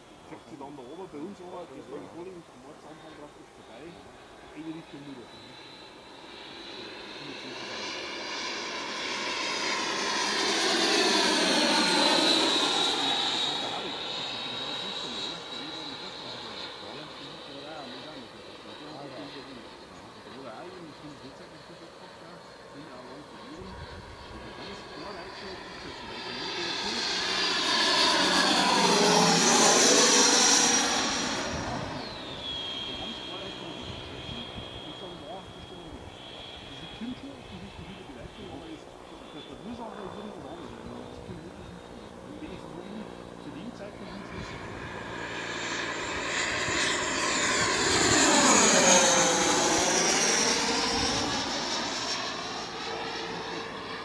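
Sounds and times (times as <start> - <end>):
ducted fan jet whine: 0.0 - 54.0.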